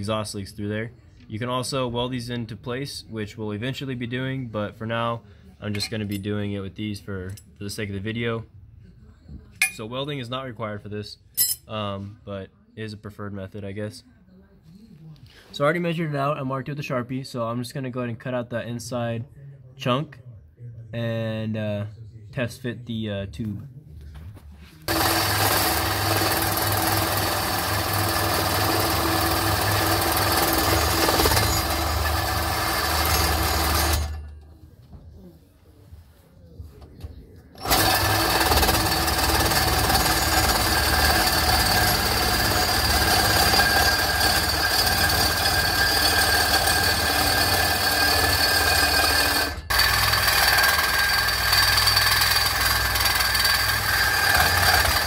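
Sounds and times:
reciprocating saw cutting steel pipe: 24.9s - 34.2s, 37.6s - 55.0s.

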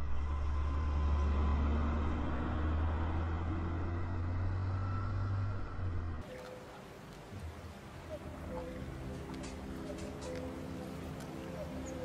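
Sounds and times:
heavy low rumble: 0.0s - 6.2s.

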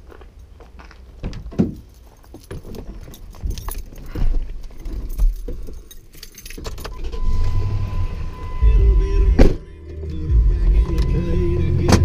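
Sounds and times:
keys jangling: 1.7s - 7.0s.

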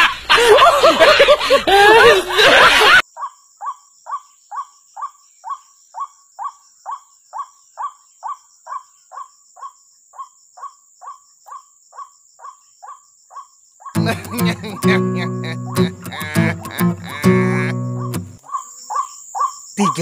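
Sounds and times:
bird call notes: 14.0s - 18.6s.

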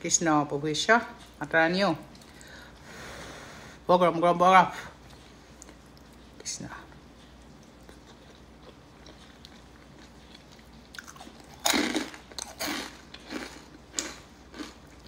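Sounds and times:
person chewing food: 2.1s - 2.9s, 5.0s - 15.0s
crunching bites: 7.8s - 15.0s.

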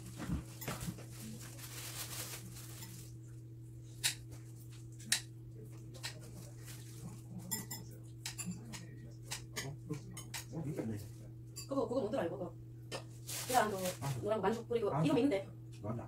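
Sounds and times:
steady low hum: 0.0s - 16.0s
cutlery and dishes clinking: 7.4s - 10.5s.

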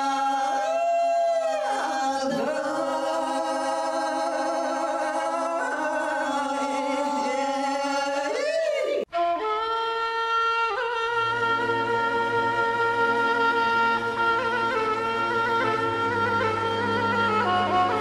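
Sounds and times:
women singing unaccompanied: 1.6s - 8.5s.

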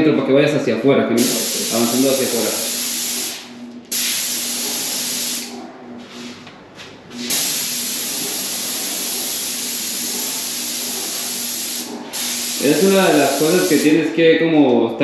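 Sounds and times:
paint sprayer hissing: 1.2s - 5.6s, 7.2s - 14.2s.

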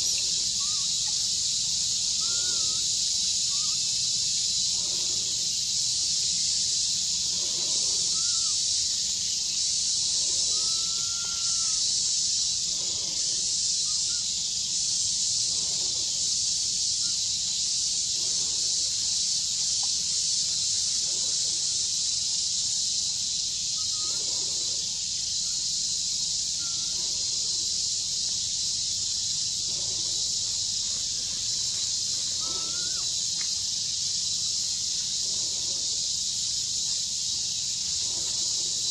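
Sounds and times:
faint short chirping calls: 0.0s - 14.8s, 23.4s - 33.7s
high-pitched insect drone: 0.0s - 38.9s.

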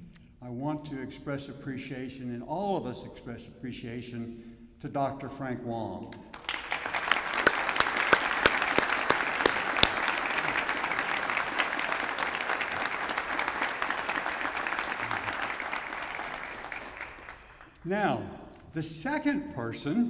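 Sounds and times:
sharp individual claps: 6.1s - 17.9s
audience applauding: 6.3s - 17.8s.

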